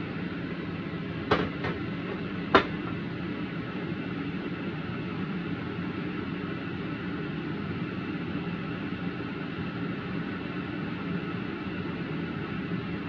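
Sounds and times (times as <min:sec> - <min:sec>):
spatula knocking on a metal wok: 0:01.3 - 0:03.0.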